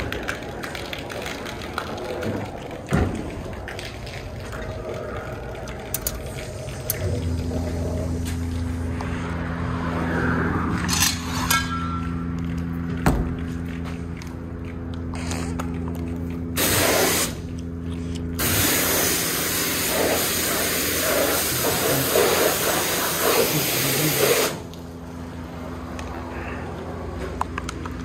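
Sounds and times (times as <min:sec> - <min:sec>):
low machine hum: 0:00.0 - 0:23.2, 0:24.6 - 0:28.0
pressure washer spray hissing: 0:16.6 - 0:17.4, 0:18.4 - 0:24.6.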